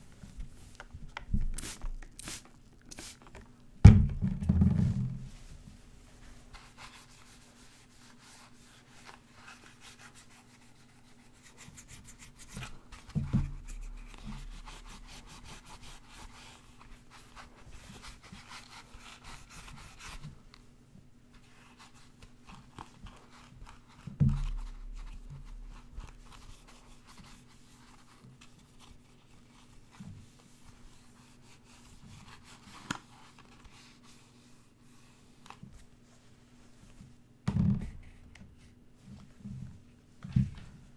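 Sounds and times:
low thump: 0:03.9 - 0:05.3
cloth wiping plastic mask: 0:05.2 - 0:20.4.

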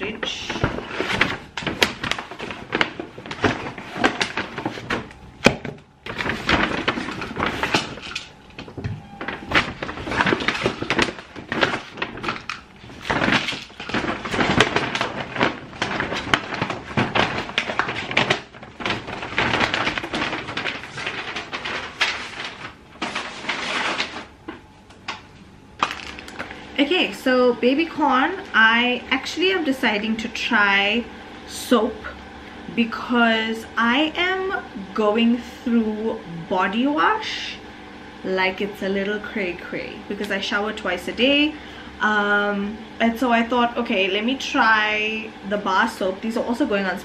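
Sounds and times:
paper bags rustling: 0:00.0 - 0:27.0.

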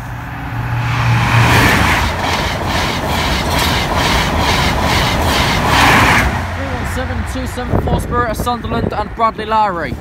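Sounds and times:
train passing at speed: 0:00.0 - 0:10.0
train wheels clattering: 0:01.8 - 0:06.3.

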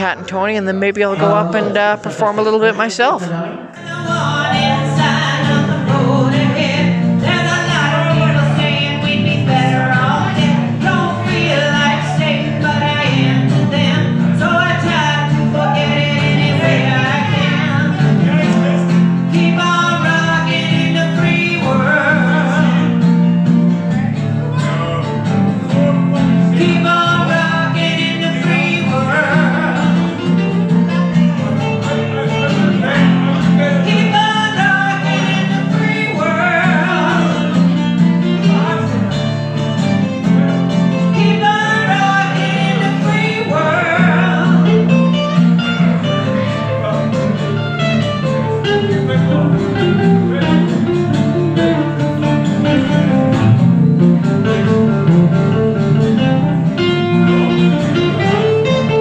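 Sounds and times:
person singing: 0:00.0 - 0:23.0, 0:23.9 - 0:39.6, 0:41.0 - 0:47.6
acoustic guitars playing: 0:00.0 - 0:59.0.

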